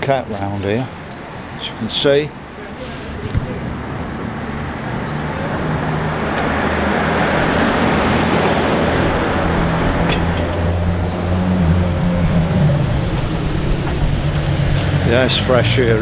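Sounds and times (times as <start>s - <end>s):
cars passing: 0.0s - 16.0s
high squeak: 10.4s - 11.0s.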